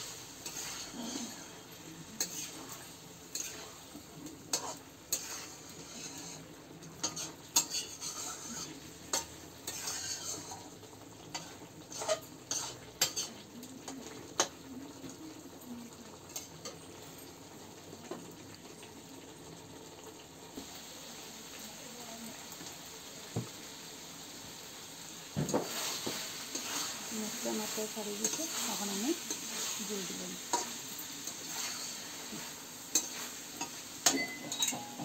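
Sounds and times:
faint sizzle: 0.0s - 35.0s
metal spatula scraping steel pan: 0.4s - 1.6s, 2.2s - 3.8s, 4.5s - 10.7s, 11.3s - 13.4s, 25.6s - 35.0s.

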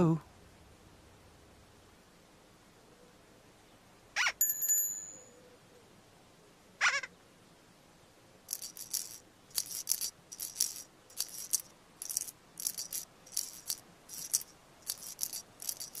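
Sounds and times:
shaker rattled rhythmically: 8.5s - 16.0s.

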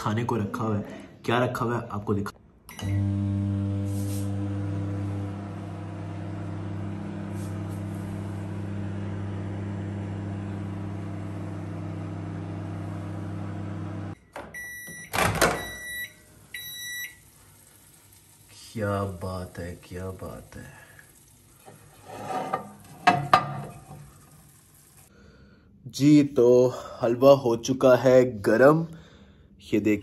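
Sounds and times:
microwave beeps: 2.7s - 6.6s, 13.8s - 17.4s
microwave oven humming: 2.7s - 22.0s, 22.6s - 25.1s.

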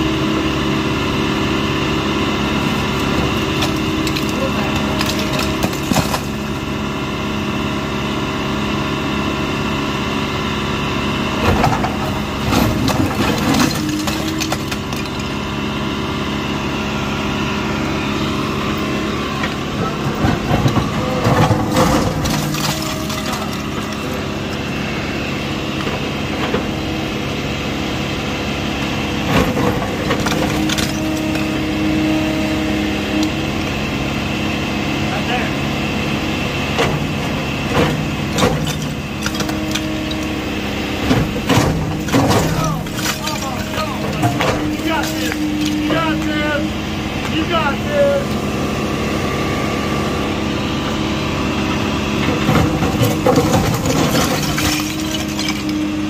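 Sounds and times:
diesel engine running: 0.0s - 56.0s
bricks clattering falling: 2.7s - 6.5s, 11.5s - 15.3s, 19.9s - 24.4s, 29.5s - 31.5s, 37.8s - 40.2s, 41.2s - 46.4s, 52.4s - 56.0s.

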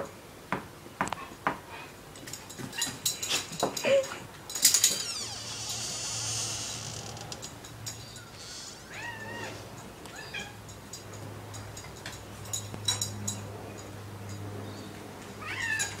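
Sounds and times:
cat meowing: 8.8s - 10.6s.

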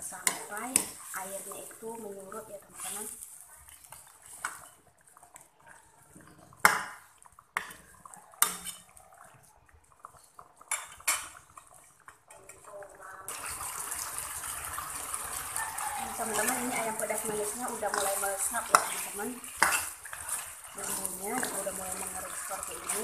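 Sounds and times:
metal spatula scraping wok: 0.0s - 4.9s, 8.4s - 9.0s, 13.3s - 23.0s
sauce bubbling hiss: 13.2s - 23.0s.

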